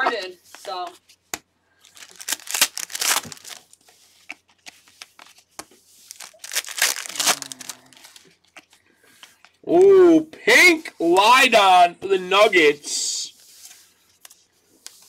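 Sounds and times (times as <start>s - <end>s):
foil wrappers crinkling: 1.8s - 4.3s, 6.0s - 8.8s.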